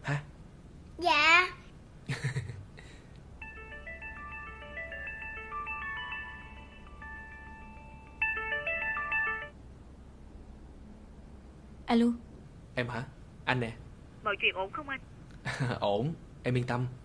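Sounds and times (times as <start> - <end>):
melodic phone ringtone: 3.4 - 9.6.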